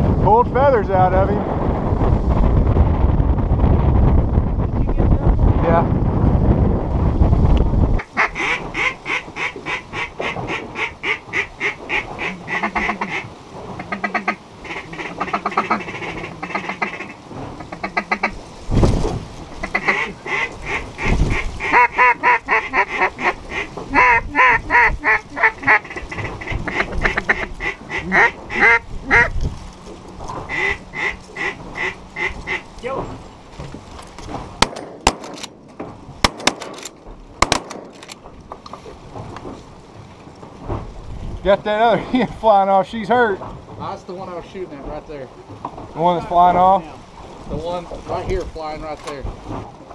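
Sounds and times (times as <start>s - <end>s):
duck call rapid quacks: 8.0s - 17.2s, 19.6s - 29.3s, 30.5s - 32.6s.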